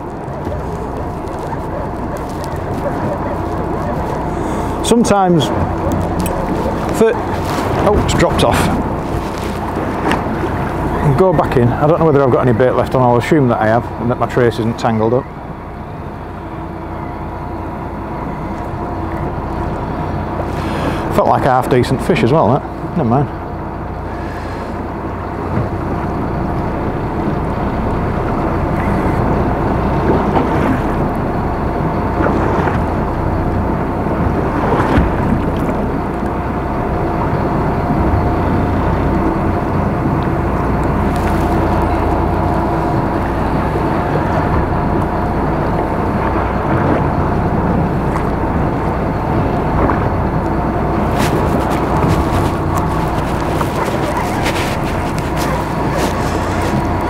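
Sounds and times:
wind buffeting microphone: 0:00.0 - 0:13.0, 0:24.8 - 0:57.0
boat engine idling: 0:00.0 - 0:57.0.

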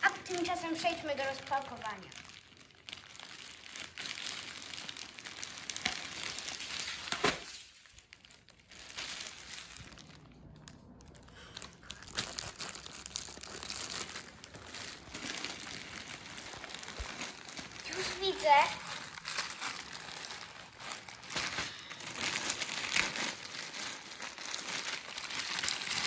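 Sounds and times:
packaging crinkling and rustling: 0:00.0 - 0:26.0.

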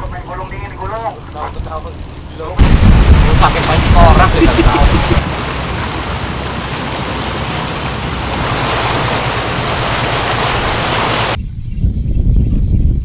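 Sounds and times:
water splashing along hull: 0:00.0 - 0:11.4
wind on microphone: 0:02.6 - 0:13.0
low engine hum: 0:04.3 - 0:11.4.

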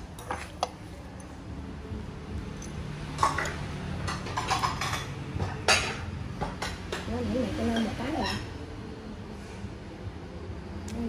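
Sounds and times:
ceramic bowls clinking: 0:00.0 - 0:01.4, 0:02.5 - 0:08.6.

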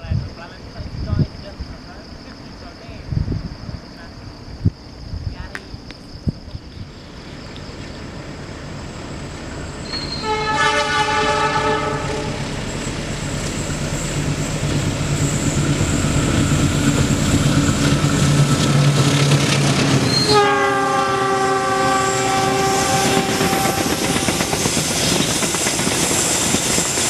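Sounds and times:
train engine and wheel noise: 0:00.0 - 0:27.0
locomotive horn blast: 0:09.8 - 0:12.5, 0:20.0 - 0:24.6.

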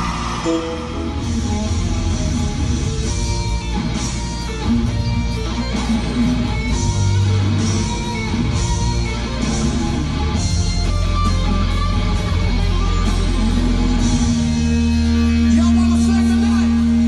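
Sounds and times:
rock music with electric guitar: 0:00.0 - 0:17.0.

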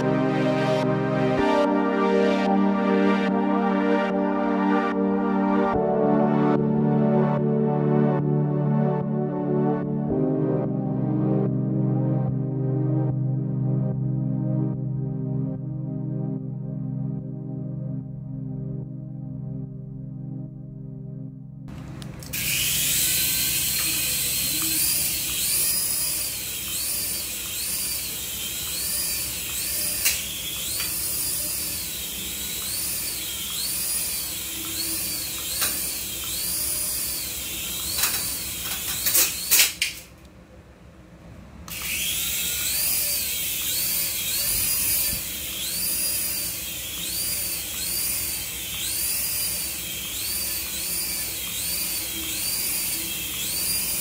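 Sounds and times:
toy helicopter rotor whine: 0:22.2 - 0:40.1, 0:41.7 - 0:54.0
sharp clicks: 0:28.7 - 0:31.1.

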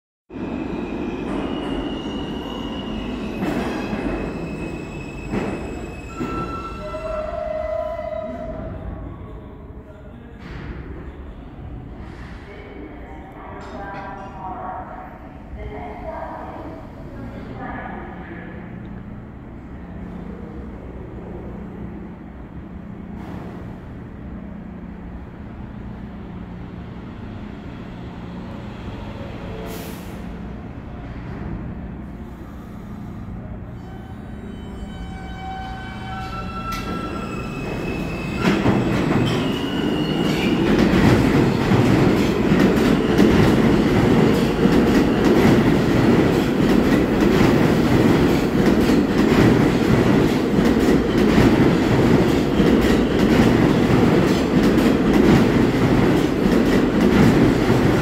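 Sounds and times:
train wheels squealing on rails: 0:00.4 - 0:09.0, 0:32.2 - 0:45.8
deep train rumble: 0:05.2 - 0:58.0.

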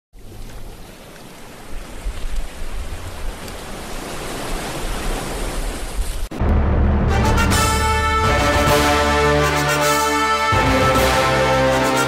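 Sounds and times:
ocean surf breaking: 0:00.8 - 0:10.2.

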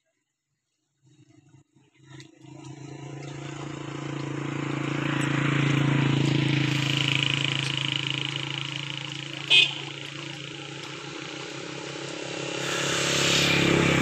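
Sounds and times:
motor engine hum: 0:02.2 - 0:14.0.

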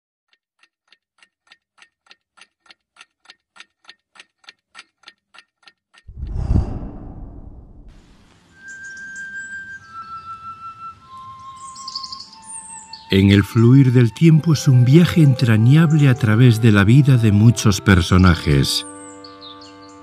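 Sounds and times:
clock ticking: 0:00.3 - 0:06.0
deep whoosh: 0:06.1 - 0:08.2.

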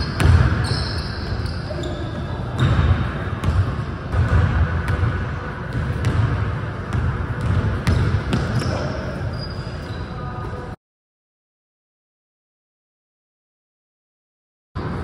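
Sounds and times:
sneaker squeaks: 0:00.0 - 0:03.8, 0:07.4 - 0:10.7
basketball bouncing on hardwood floor: 0:05.7 - 0:08.8.

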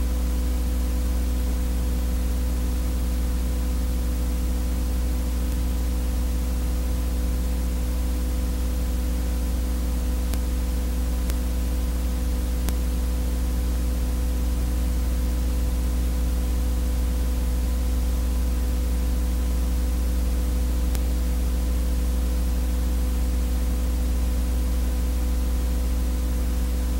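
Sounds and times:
electrical buzz with hiss: 0:00.0 - 0:26.9
faint ticks: 0:05.5 - 0:05.7, 0:11.2 - 0:11.7, 0:12.4 - 0:13.0, 0:20.9 - 0:21.1.

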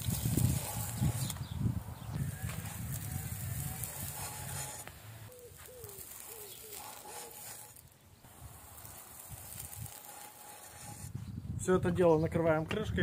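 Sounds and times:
pigeon cooing: 0:05.3 - 0:07.4.

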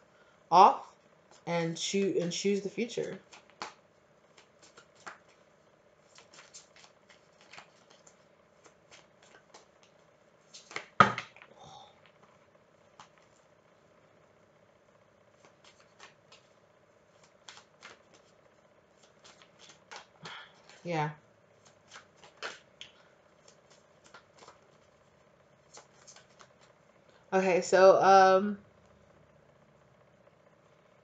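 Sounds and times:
faint steady hum: 0:00.0 - 0:31.0
cards shuffled by hand: 0:02.8 - 0:13.5, 0:15.4 - 0:26.8.

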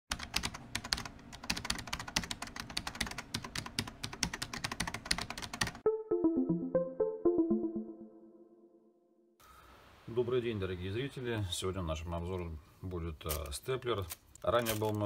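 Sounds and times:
rapid typing on a keyboard: 0:00.1 - 0:05.8
plucked notes melody: 0:05.8 - 0:08.9.

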